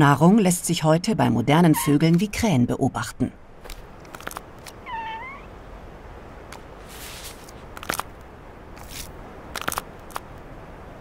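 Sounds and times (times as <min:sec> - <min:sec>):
sharp cracks: 0:03.6 - 0:04.8, 0:07.7 - 0:08.1, 0:08.8 - 0:10.3
snow crunching and scraping: 0:06.8 - 0:08.1.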